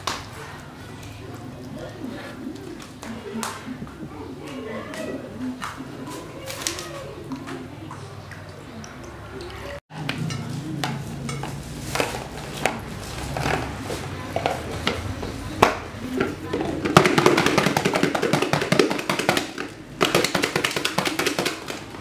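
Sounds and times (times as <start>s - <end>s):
eggs rattling in shaken bowl: 11.9s - 22.0s
eggs knocking in plastic bowl: 14.4s - 22.0s.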